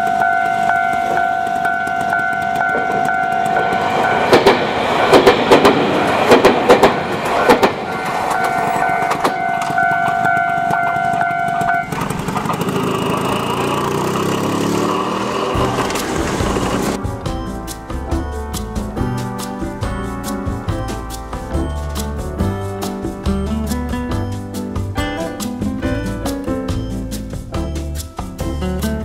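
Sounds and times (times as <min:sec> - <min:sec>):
level-crossing warning bell ringing: 0:00.0 - 0:04.8, 0:07.7 - 0:13.5
train wheels clacking over rail joints: 0:00.0 - 0:17.0.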